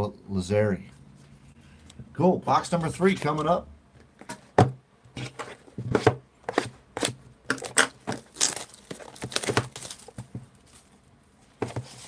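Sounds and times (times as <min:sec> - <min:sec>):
plastic wrap tearing and crinkling: 0:07.0 - 0:10.2.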